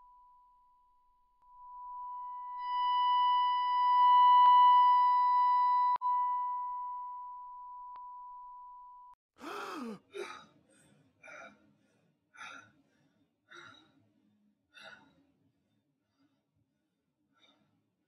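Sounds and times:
man gasping: 0:09.4 - 0:11.6
heavy breathing: 0:09.4 - 0:14.1.

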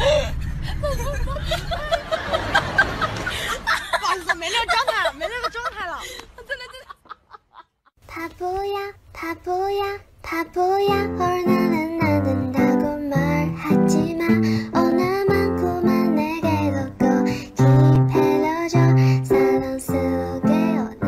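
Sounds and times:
person singing: 0:08.1 - 0:21.0.

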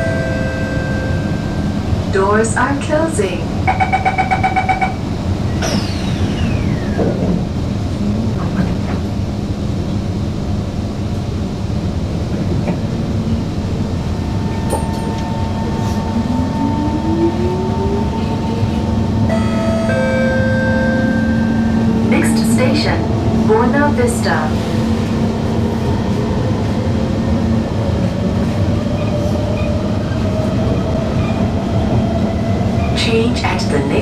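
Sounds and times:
train running hum: 0:00.0 - 0:34.0
train door-closing beeps: 0:03.6 - 0:07.2, 0:14.4 - 0:16.5, 0:18.3 - 0:22.6
traction motor whine: 0:05.5 - 0:08.4
onboard chime: 0:19.3 - 0:22.1.

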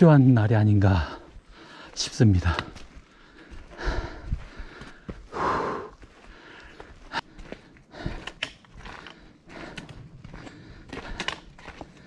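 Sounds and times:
footsteps on trail: 0:00.0 - 0:12.0
person breathing hard: 0:01.1 - 0:02.0, 0:02.6 - 0:12.0.

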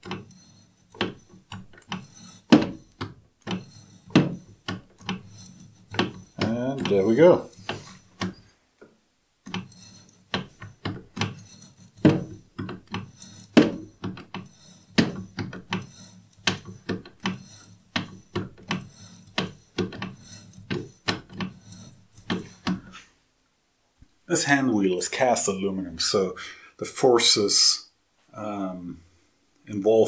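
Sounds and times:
milling tool scraping metal: 0:00.0 - 0:08.4, 0:09.5 - 0:23.1.

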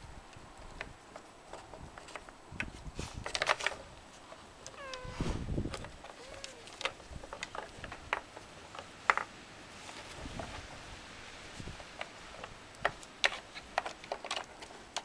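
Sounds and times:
wooden puzzle pegs clacking: 0:05.7 - 0:09.3, 0:11.9 - 0:15.0.

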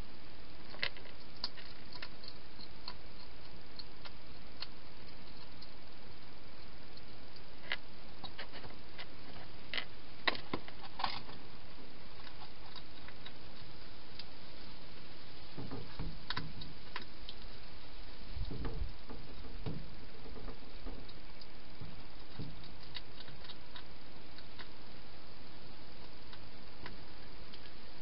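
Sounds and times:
steady hiss: 0:00.0 - 0:28.0
hedgehog eating clicks: 0:00.6 - 0:06.0, 0:12.1 - 0:14.3, 0:18.4 - 0:25.0.

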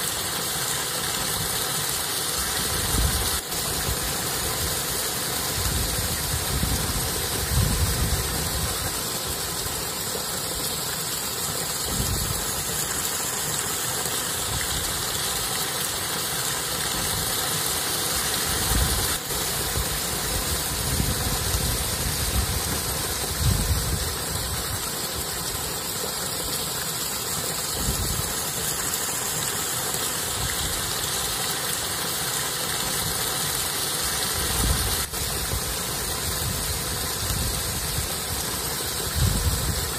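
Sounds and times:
steady outdoor hiss: 0:00.0 - 0:39.9
wind gusting on microphone: 0:05.6 - 0:08.8, 0:20.4 - 0:24.2, 0:39.1 - 0:39.9.

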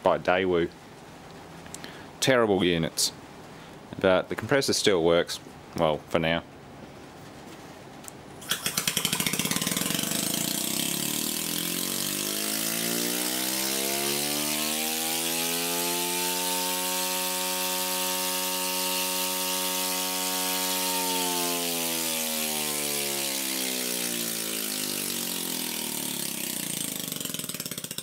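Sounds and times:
compressor motor whine rising: 0:08.4 - 0:28.0.

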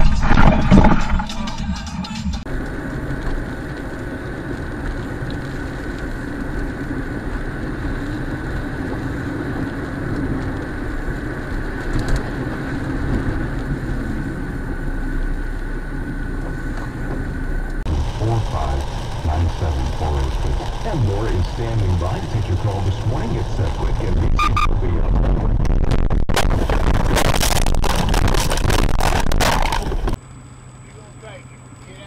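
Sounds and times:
engine rumble inside car: 0:02.4 - 0:25.2
tyres hissing on wet road: 0:17.9 - 0:24.2.

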